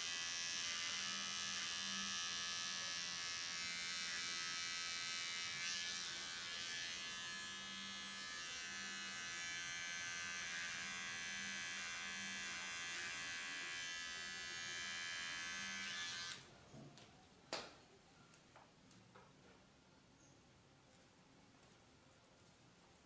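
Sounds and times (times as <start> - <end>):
electric hair clippers buzzing: 0.0 - 16.4.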